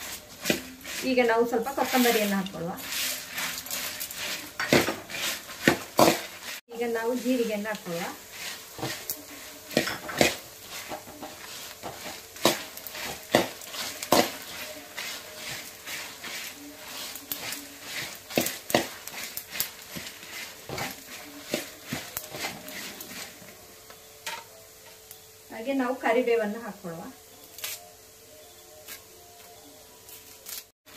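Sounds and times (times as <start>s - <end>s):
metal spatula scraping a pan: 0.0s - 23.5s.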